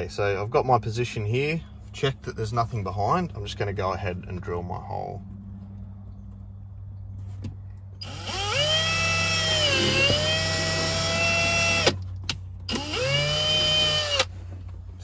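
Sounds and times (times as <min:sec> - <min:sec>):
cordless drill boring through plastic: 0:08.0 - 0:12.0, 0:12.7 - 0:14.3.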